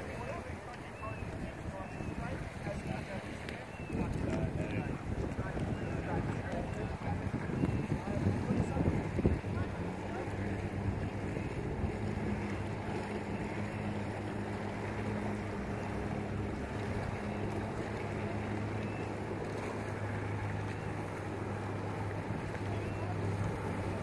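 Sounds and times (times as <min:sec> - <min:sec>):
jet ski engine idling: 0:00.0 - 0:24.0
wind noise on microphone: 0:01.1 - 0:12.4.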